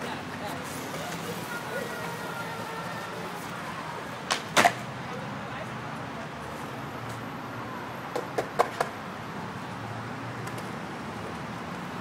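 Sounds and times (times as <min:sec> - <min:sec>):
skateboard clacking on concrete: 0:04.2 - 0:04.9, 0:08.1 - 0:09.0, 0:10.4 - 0:10.8.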